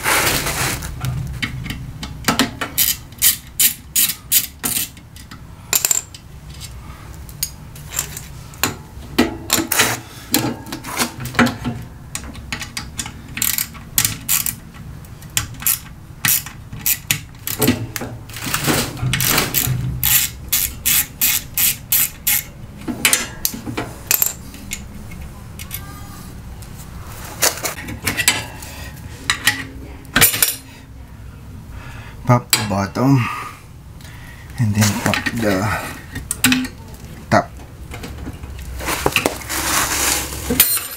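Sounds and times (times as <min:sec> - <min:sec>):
socket ratchet clicking: 0:02.8 - 0:05.0, 0:12.5 - 0:14.6, 0:15.4 - 0:17.7, 0:19.2 - 0:22.5.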